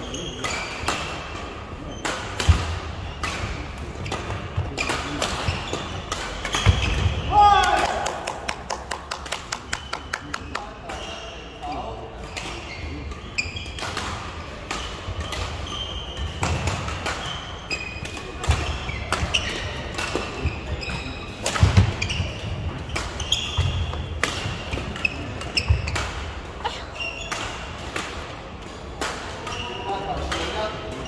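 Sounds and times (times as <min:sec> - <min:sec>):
sneakers squeaking on court: 0:03.0 - 0:07.2, 0:14.7 - 0:26.2, 0:26.8 - 0:27.7.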